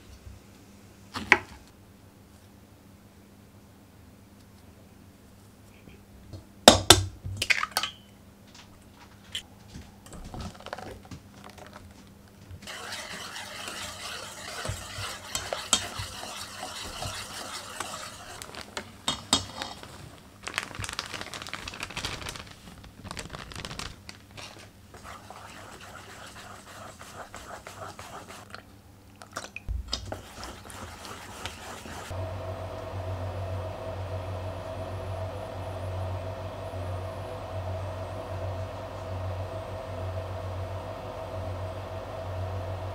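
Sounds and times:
steady hum: 12.0 - 28.5, 29.7 - 42.9
whisk scraping metal bowl: 12.6 - 19.8, 24.9 - 28.5, 30.0 - 32.1.

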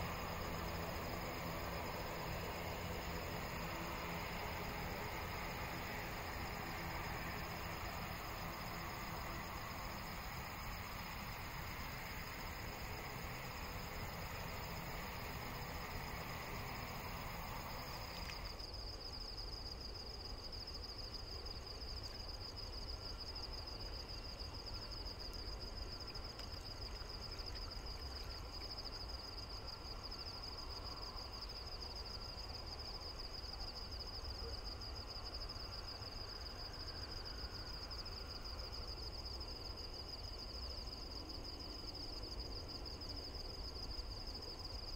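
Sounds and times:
hiss: 0.0 - 18.7
low background rumble: 0.0 - 18.7
high-pitched insect chorus: 0.0 - 44.9.

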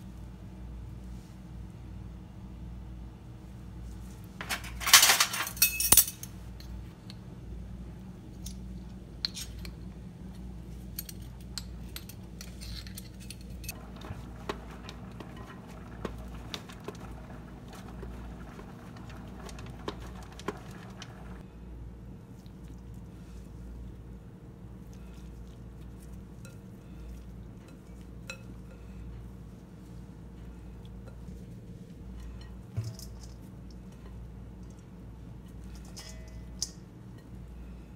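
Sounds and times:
kitchen clicks and clinks: 4.4 - 6.3, 35.6 - 37.3.

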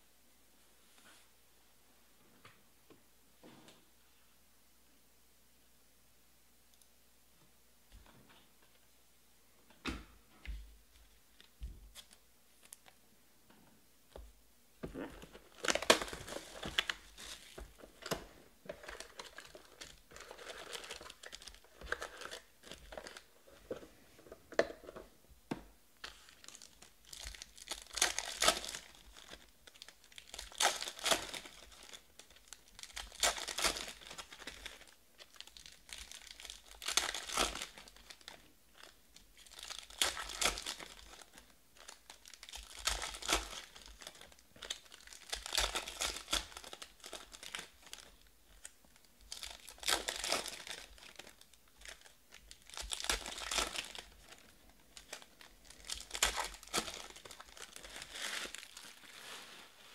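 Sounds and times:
foil wrappers crinkling and tearing: 15.0 - 23.4, 26.0 - 59.9.

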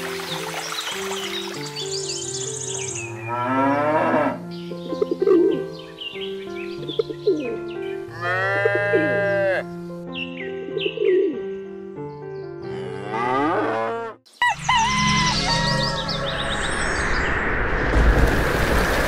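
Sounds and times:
background music: 0.0 - 18.9
birds chirping: 0.2 - 3.7, 4.4 - 8.4, 9.0 - 12.7
cow mooing: 3.3 - 4.4, 8.1 - 9.6, 12.6 - 14.2.

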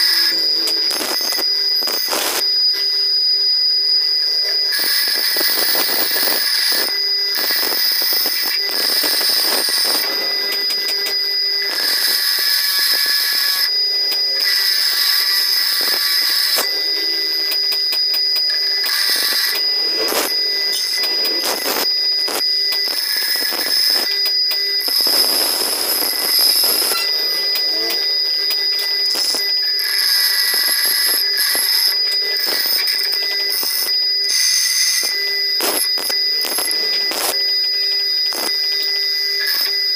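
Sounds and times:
bench grinder whine: 0.0 - 39.9
metal grinding rasp: 7.5 - 17.8, 24.9 - 33.8.

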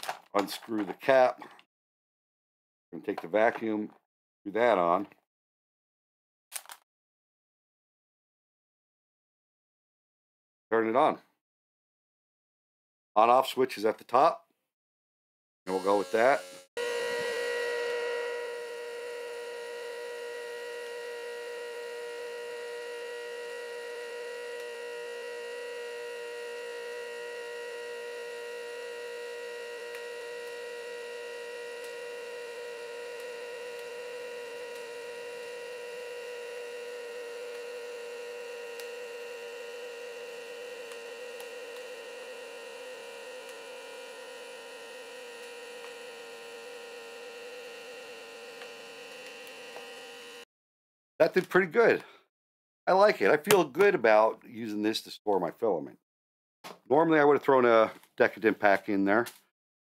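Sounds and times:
vacuum pump humming: 15.7 - 50.4.

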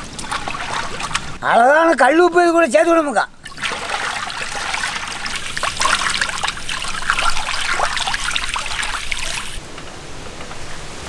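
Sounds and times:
liquid sloshing in metal pot: 0.0 - 1.4, 3.4 - 9.6.

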